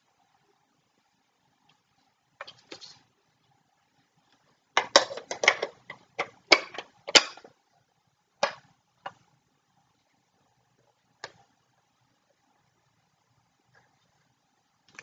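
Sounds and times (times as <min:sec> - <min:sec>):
plastic parts clicking: 0:04.8 - 0:07.5.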